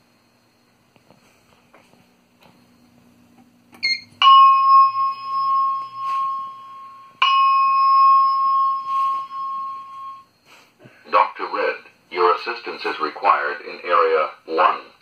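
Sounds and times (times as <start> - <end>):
short high beep: 3.8 - 10.2
ringing chime strikes: 4.2 - 10.4.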